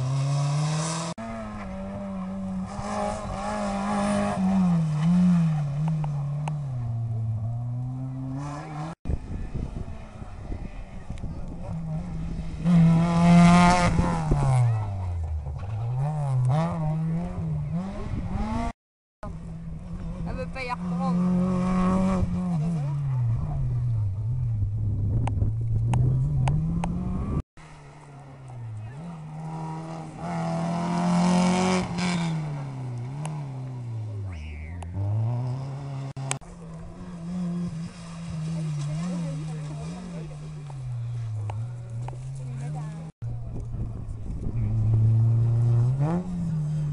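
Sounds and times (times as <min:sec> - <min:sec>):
rally car engine revving: 0:00.0 - 0:46.9.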